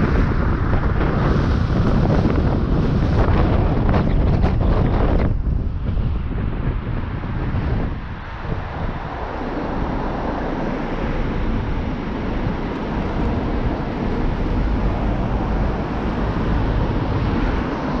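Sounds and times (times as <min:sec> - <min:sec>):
car rumble in slow traffic: 0:00.0 - 0:18.0.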